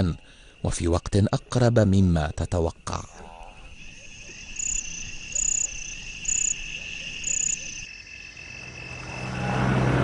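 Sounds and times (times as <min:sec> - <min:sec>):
insects trilling: 0:00.0 - 0:09.8
loud high insect chirping: 0:00.0 - 0:09.8
low drone: 0:08.5 - 0:10.0.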